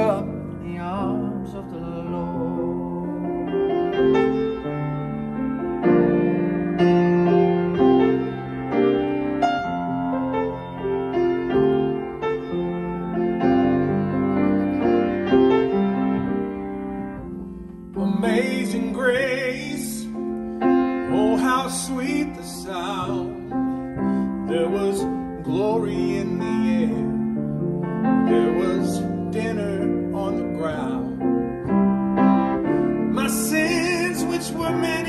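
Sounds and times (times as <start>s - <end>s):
man singing with vibrato: 0.0s - 3.3s, 17.9s - 20.2s, 21.0s - 23.6s, 24.4s - 27.3s, 28.2s - 31.3s, 33.1s - 35.0s
grand piano playing: 0.0s - 35.0s.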